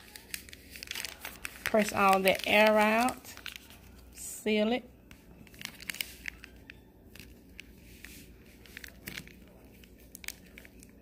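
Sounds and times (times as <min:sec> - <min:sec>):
plastic bag crinkling: 0:00.0 - 0:04.4, 0:05.0 - 0:11.0
small crackles and clicks: 0:05.1 - 0:11.0.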